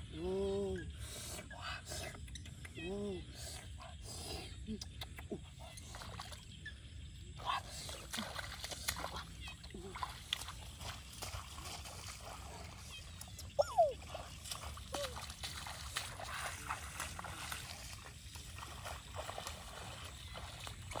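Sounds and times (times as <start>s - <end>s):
bare feet splashing in water: 5.6s - 6.6s, 7.4s - 21.0s.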